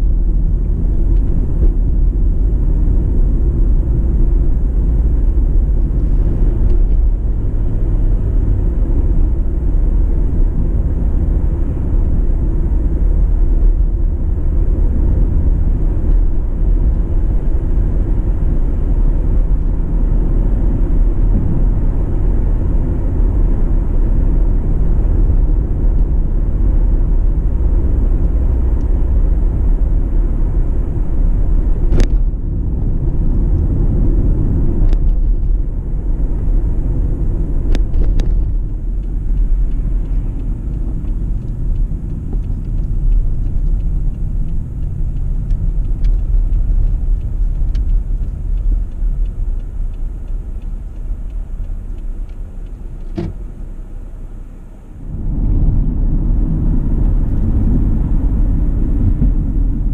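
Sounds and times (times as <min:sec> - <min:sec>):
car engine and tyre rumble: 0:00.0 - 0:59.9.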